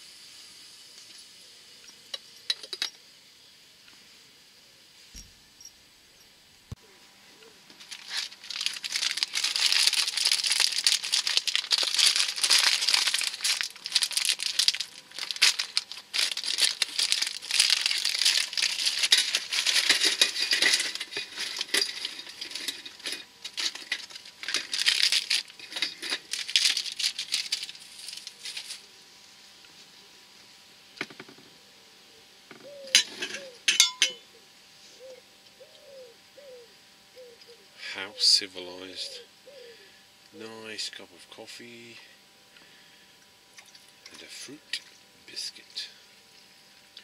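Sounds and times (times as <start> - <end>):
foil wrapper crinkling: 7.7 - 28.9.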